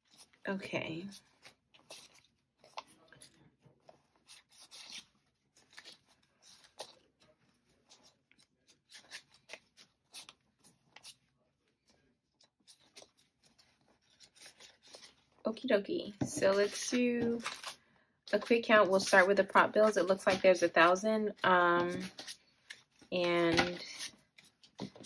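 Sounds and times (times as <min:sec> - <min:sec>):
paper rustling and crinkling: 0:00.0 - 0:15.4, 0:16.0 - 0:21.0, 0:21.8 - 0:25.0.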